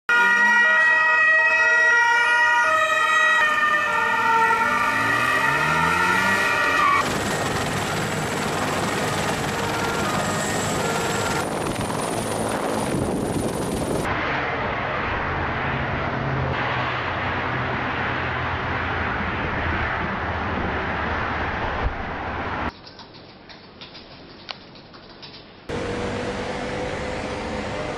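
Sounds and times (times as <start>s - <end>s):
two-tone police siren: 0.1s - 11.9s
helicopter turbine and rotor: 5.6s - 14.1s.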